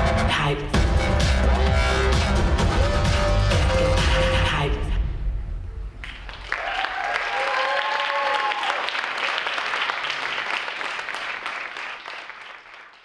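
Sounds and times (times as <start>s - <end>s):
audience applauding: 6.0s - 13.0s
person cheering: 6.5s - 8.9s.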